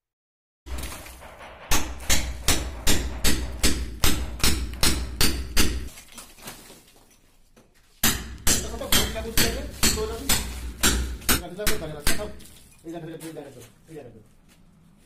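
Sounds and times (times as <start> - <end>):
hammer striking chisel: 0.7 - 5.9, 8.0 - 12.5.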